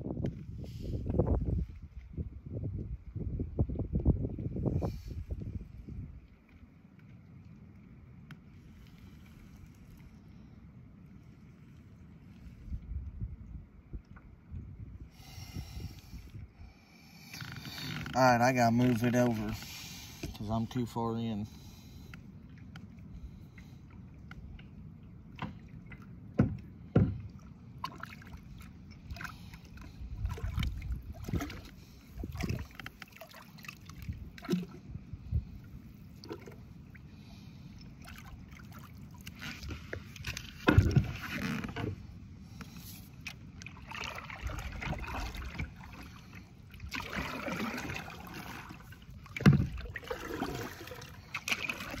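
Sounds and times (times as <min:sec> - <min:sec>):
paddle splashing water: 0:04.8 - 0:12.9, 0:17.0 - 0:52.0
knocks against kayak hull: 0:26.4 - 0:27.3, 0:40.6 - 0:42.0, 0:49.4 - 0:49.8.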